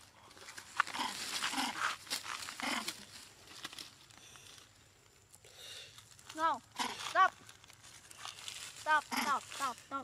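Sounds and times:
baby monkey crying: 0:08.9 - 0:09.4.

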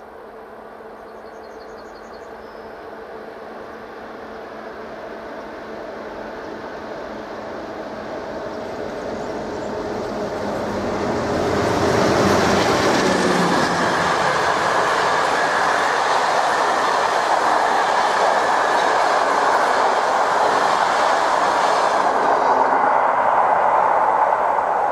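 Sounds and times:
diesel locomotive engine: 0:00.0 - 0:24.9
train wheels rolling on rails: 0:01.2 - 0:24.9.

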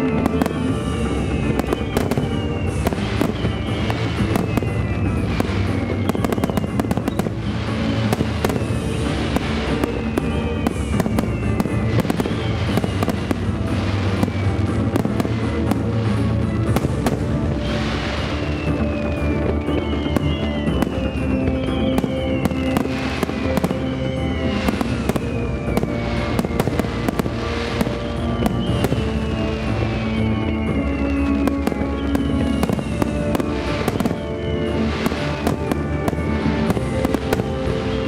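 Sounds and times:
fireworks bursting and crackling: 0:00.0 - 0:38.0
loud music over loudspeakers: 0:00.0 - 0:38.0.

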